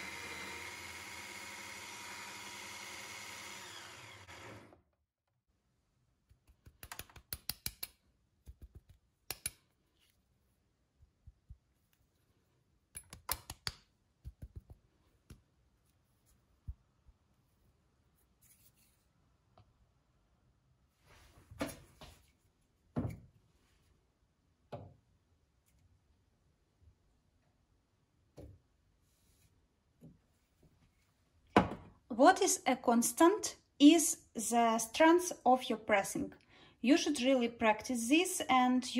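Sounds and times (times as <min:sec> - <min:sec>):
coffee grinder running: 0:00.0 - 0:04.8.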